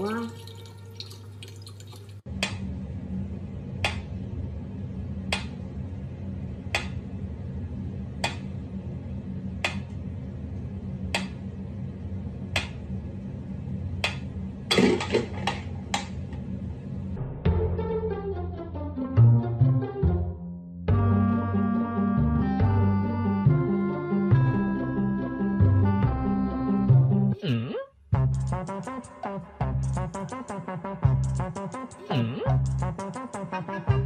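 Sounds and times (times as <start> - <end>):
low hum: 2.2 - 18.9.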